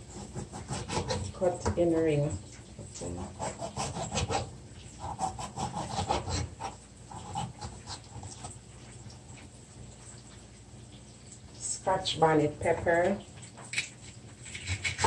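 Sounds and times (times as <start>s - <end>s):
knife slicing on cutting board: 0.1s - 1.4s, 3.2s - 8.5s, 14.4s - 15.0s.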